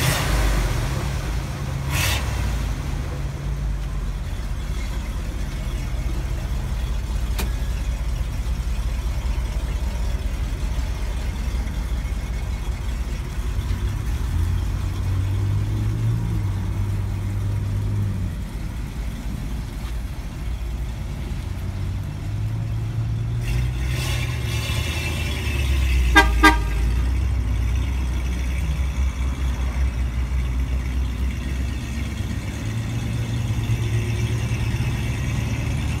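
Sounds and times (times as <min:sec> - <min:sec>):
truck engine revving and driving off: 0:00.0 - 0:36.0
vehicle horn toots: 0:26.1 - 0:27.2.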